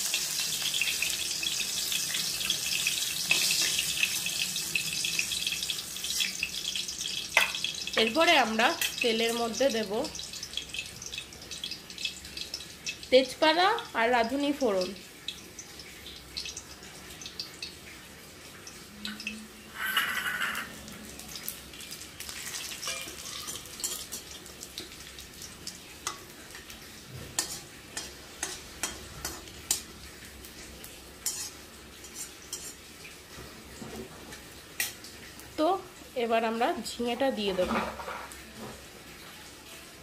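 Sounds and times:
oil frying sizzle: 0:00.0 - 0:40.0
metal spoon scraping pan: 0:19.7 - 0:20.7, 0:22.8 - 0:24.2, 0:31.2 - 0:32.8.

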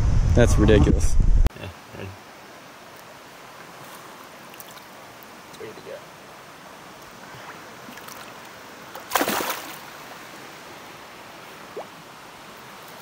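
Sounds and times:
river water running: 0:01.5 - 0:13.0
fish splashing in water: 0:09.0 - 0:09.9.

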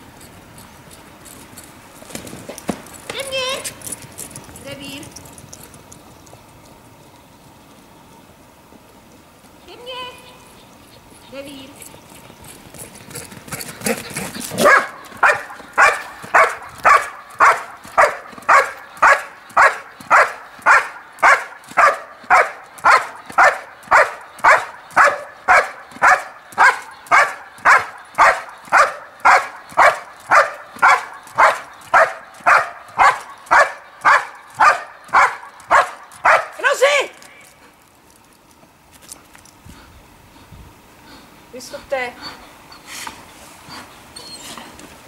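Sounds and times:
dog barking: 0:14.6 - 0:36.8.

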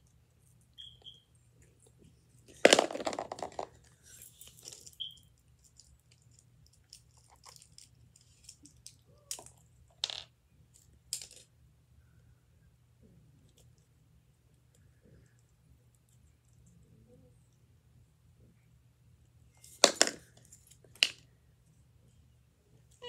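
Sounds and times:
plastic toy pieces clattering: 0:02.5 - 0:10.3, 0:19.7 - 0:21.2.

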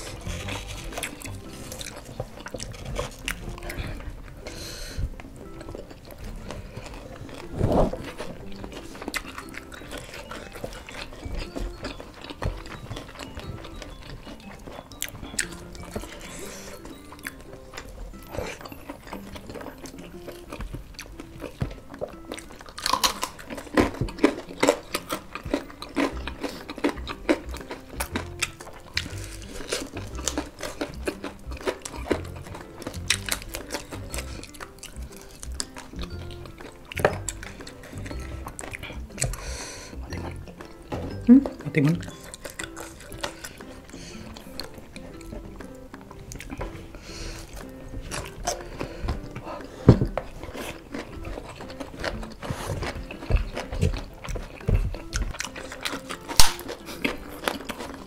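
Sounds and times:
soft background music: 0:00.0 - 0:58.0
wet chewing: 0:00.0 - 0:58.0
crisp crunches: 0:06.2 - 0:39.5, 0:50.1 - 0:58.0
lip smacks: 0:14.2 - 0:58.0.

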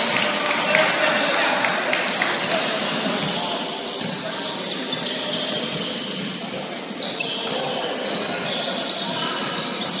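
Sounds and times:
sneaker squeaks: 0:02.4 - 0:10.0.

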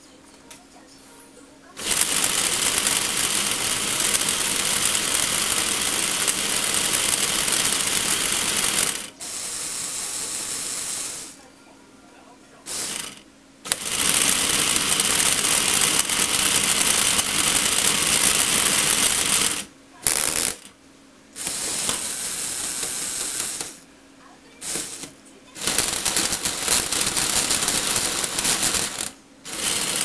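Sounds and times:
plastic gears whirring and clattering: 0:01.8 - 0:09.4, 0:12.7 - 0:20.7, 0:21.4 - 0:23.8, 0:24.6 - 0:30.0.

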